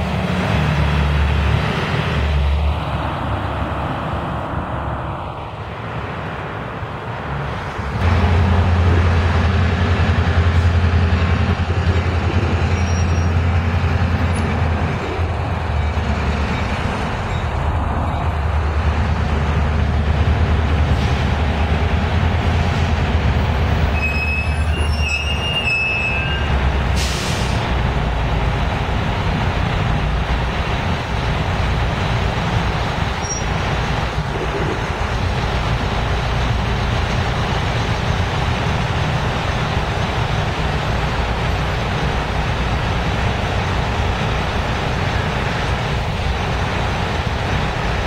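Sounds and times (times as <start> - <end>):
high wheel squeal: 12.1 - 14.6, 15.8 - 18.2, 23.8 - 27.5, 33.2 - 33.6.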